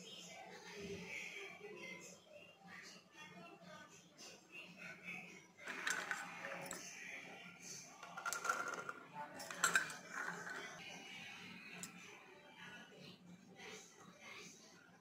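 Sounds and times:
peas rattling onto metal pot: 5.7s - 6.7s, 8.0s - 10.6s
bowl clinking against pot: 8.2s - 10.5s.

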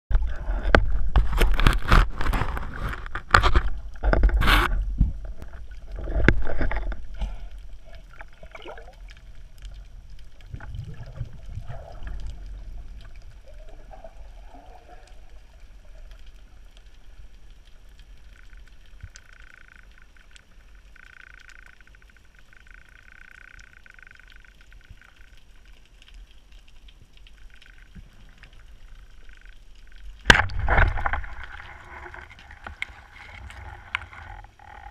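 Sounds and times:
knocks and clicks underwater: 0.1s - 16.8s, 17.4s - 34.9s
water rushing over camera housing: 0.2s - 7.1s, 30.2s - 34.9s.

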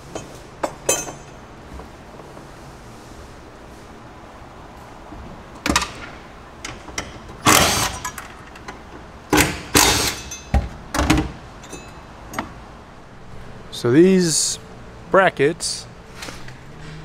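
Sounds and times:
impact wrench bursts: 7.4s - 8.3s, 9.3s - 10.6s.

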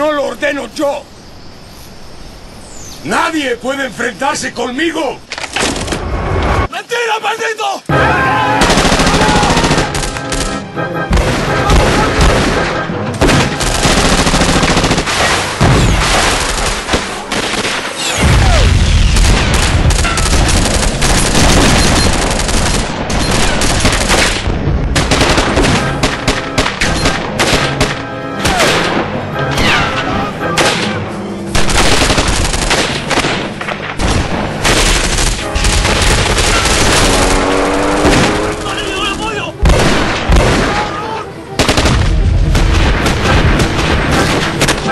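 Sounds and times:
single gunshots: 11.1s - 29.8s, 31.6s - 38.7s, 39.6s - 40.9s
automatic rifle fire: 19.2s - 24.4s, 31.6s - 38.7s.

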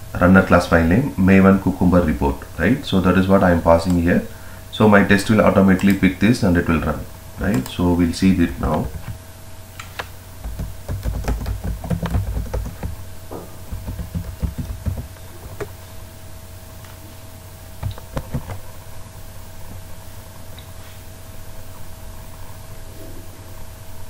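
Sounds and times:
steady low hum: 0.0s - 24.0s
typing on computer keyboard: 10.0s - 13.0s, 13.7s - 15.7s, 17.8s - 18.6s.

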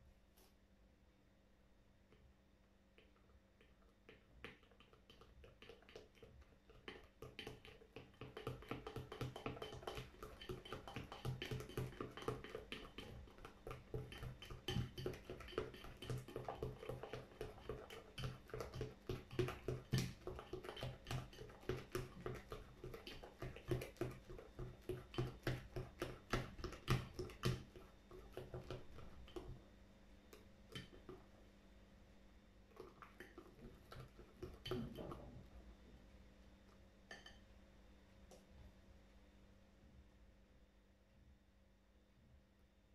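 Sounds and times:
fork tapping ceramic bowl: 4.1s - 27.6s, 30.3s - 31.2s, 37.1s - 37.4s.

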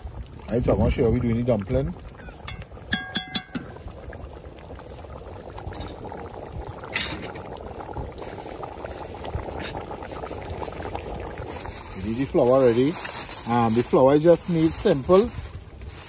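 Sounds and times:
soup bubbling in a pot: 0.0s - 16.0s
metal spoon clinking on pot: 2.4s - 3.8s.

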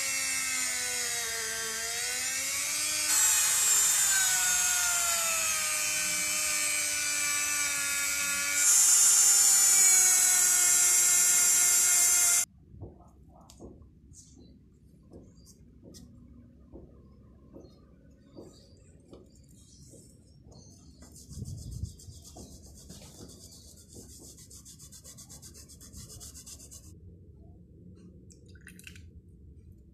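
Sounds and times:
rotary tool high whine: 0.0s - 12.5s.

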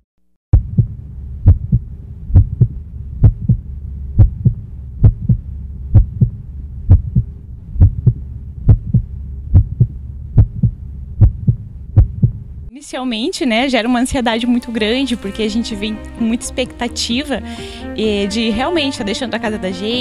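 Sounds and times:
heartbeat thumps: 0.5s - 12.6s
steady low hum: 0.5s - 18.9s.

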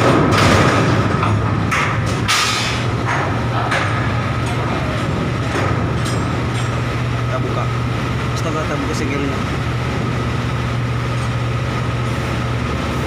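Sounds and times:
metal knocks: 0.0s - 7.1s
machinery hum: 0.0s - 13.0s.

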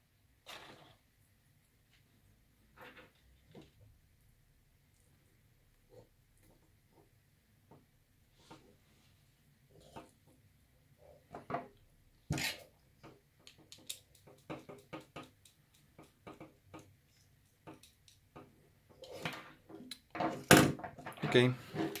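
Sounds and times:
clicks and taps of wires and tools: 13.0s - 18.6s.

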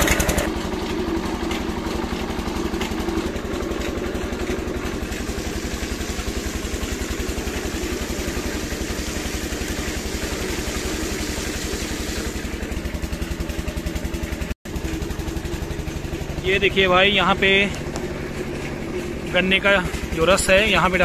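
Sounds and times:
engine running with rapid beat: 0.0s - 21.0s
juice pouring into metal pan: 5.0s - 12.9s.

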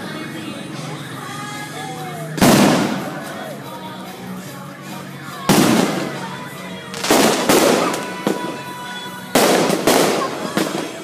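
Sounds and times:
firework shells bursting: 5.5s - 11.0s.

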